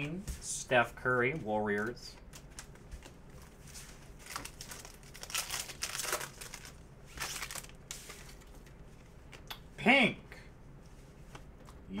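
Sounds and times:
card pack wrapper tearing: 4.2 - 7.8.

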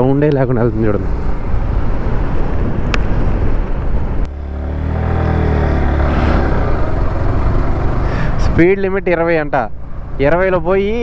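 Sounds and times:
wind rumbling on microphone: 0.6 - 4.3
motorcycle engine: 0.7 - 11.0.

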